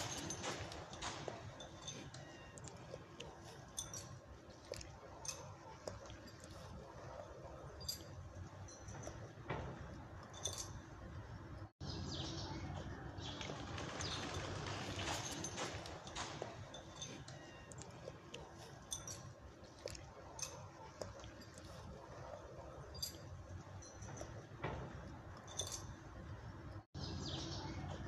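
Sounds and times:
dry leaves crackling: 0:13.2 - 0:16.1.

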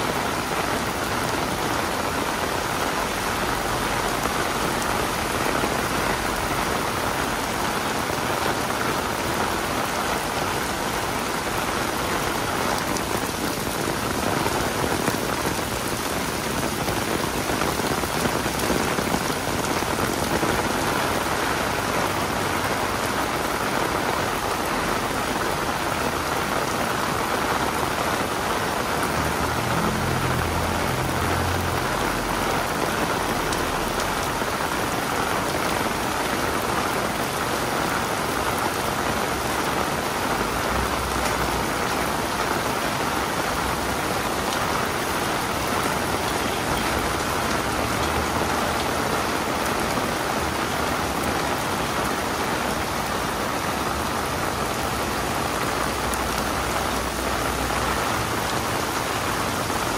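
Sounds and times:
rain drumming on umbrella: 0:00.0 - 0:59.9.

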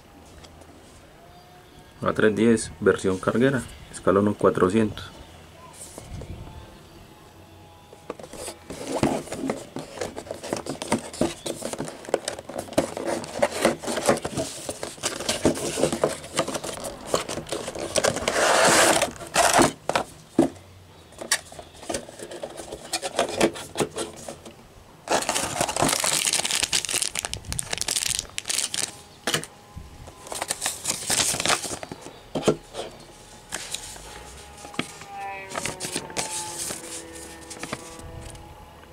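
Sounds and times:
cardboard and plastic rustling: 0:07.9 - 0:38.4.

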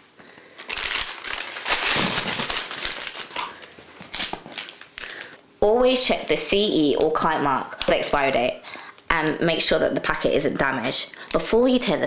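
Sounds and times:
foil wrappers crinkling: 0:00.5 - 0:05.4.

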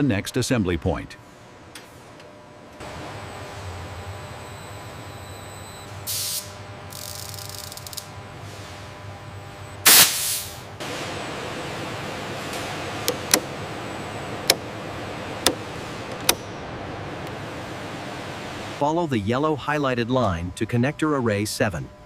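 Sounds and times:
hissing air bursts: 0:06.1 - 0:06.6, 0:09.8 - 0:10.7.

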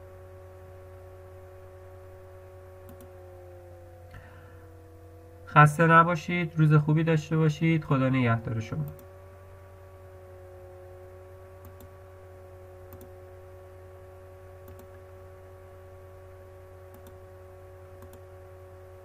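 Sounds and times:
steady electrical hum: 0:00.0 - 0:19.0
computer mouse clicks: 0:02.8 - 0:03.2, 0:11.6 - 0:11.9, 0:12.9 - 0:13.1, 0:14.6 - 0:15.0, 0:16.9 - 0:17.2, 0:18.0 - 0:18.2.

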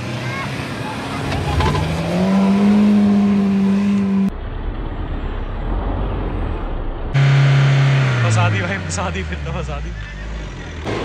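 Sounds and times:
engine revving: 0:00.0 - 0:11.0
rough low rumble: 0:04.0 - 0:08.4.

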